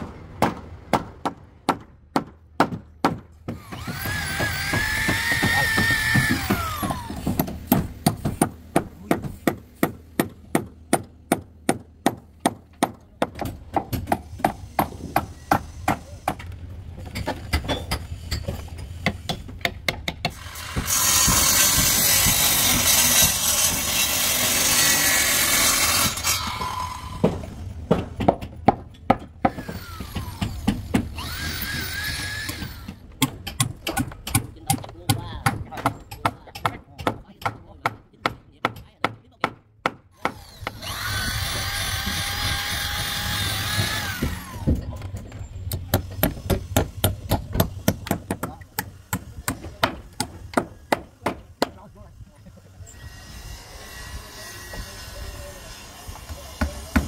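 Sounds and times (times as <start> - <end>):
hammer blows on wooden planks: 0.0 - 51.9, 55.8 - 57.0
power tool whining: 29.7 - 32.9, 40.3 - 44.8.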